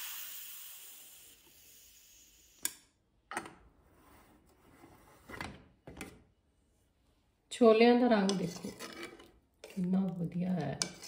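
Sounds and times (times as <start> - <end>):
steam hiss: 0.0 - 2.6.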